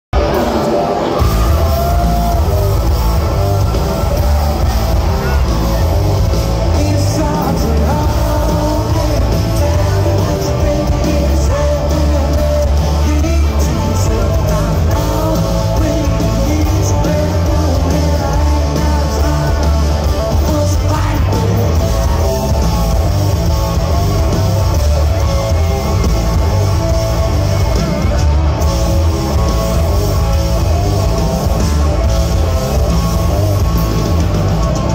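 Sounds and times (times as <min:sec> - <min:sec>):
live rock band playing: 0:00.1 - 0:34.9
person singing: 0:00.2 - 0:24.0.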